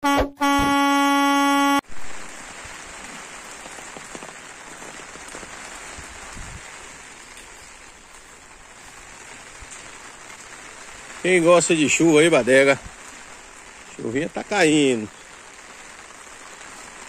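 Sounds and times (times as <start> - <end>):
loud horn-like tone: 0.0 - 2.0
light rain hiss: 0.6 - 17.0.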